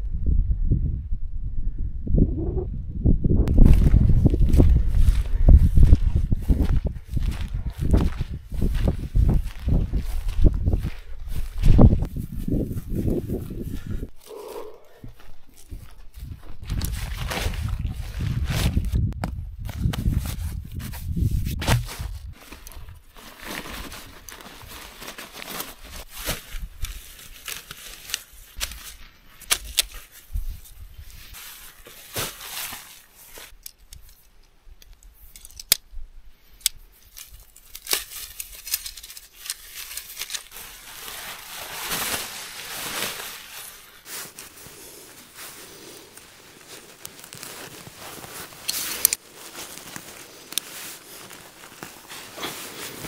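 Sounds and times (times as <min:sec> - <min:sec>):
tent poles and pegs clicking: 0:26.8 - 0:30.7, 0:33.4 - 0:40.6, 0:46.8 - 0:52.5
nylon fabric rustling: 0:30.6 - 0:33.6, 0:38.5 - 0:53.0.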